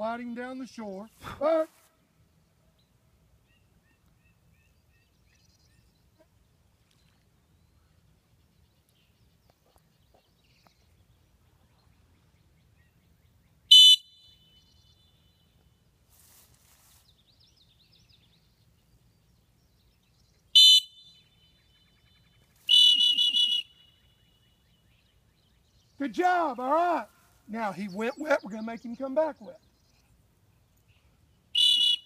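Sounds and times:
dog whistle blasts: 13.7s - 14.4s, 20.6s - 21.1s, 22.7s - 23.9s, 31.6s - 32.0s.

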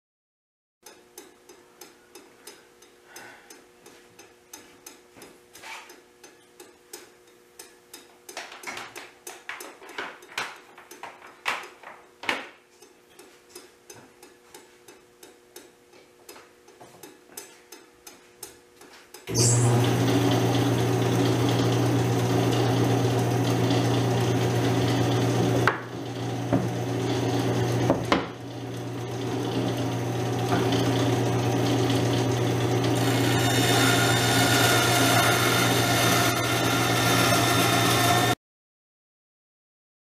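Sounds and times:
machine motor running: 19.3s - 38.4s.

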